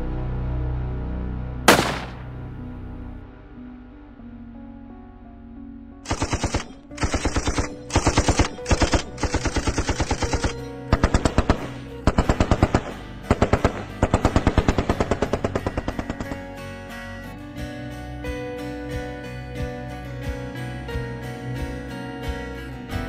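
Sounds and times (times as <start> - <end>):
automatic rifle fire bursts: 1.7 - 2.3, 6.1 - 16.5.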